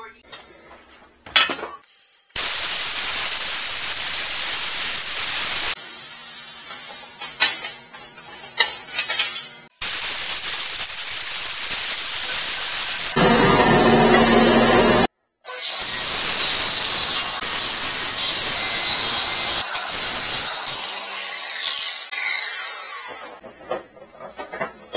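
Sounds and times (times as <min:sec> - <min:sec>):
plasma cutter hissing: 0:02.4 - 0:07.3, 0:09.8 - 0:13.2, 0:15.8 - 0:20.7.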